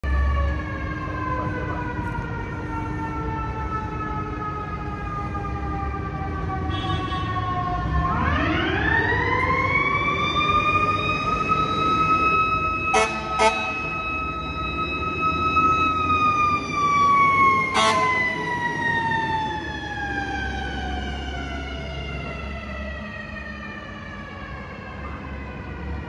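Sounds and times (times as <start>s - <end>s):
low street traffic rumble: 0.0s - 26.0s
mechanical siren wailing: 0.1s - 26.0s
fire engine horn blasts: 6.6s - 7.6s, 12.9s - 14.0s, 17.7s - 18.4s.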